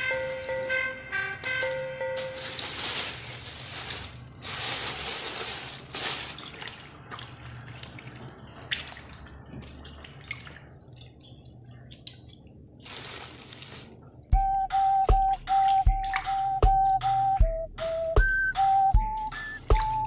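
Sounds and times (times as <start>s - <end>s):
water sloshing in a bowl: 2.4s - 14.3s
small splashes and drips: 2.4s - 17.4s, 19.0s - 20.0s.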